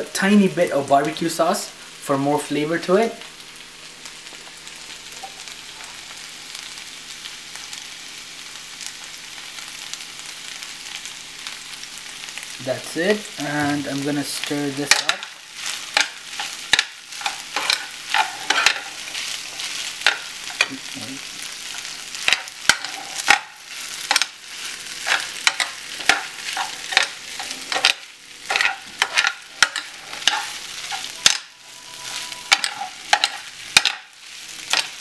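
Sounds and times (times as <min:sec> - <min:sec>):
rice sizzling: 0:00.0 - 0:35.0
metal spoon scraping skillet: 0:14.8 - 0:20.8, 0:21.7 - 0:35.0.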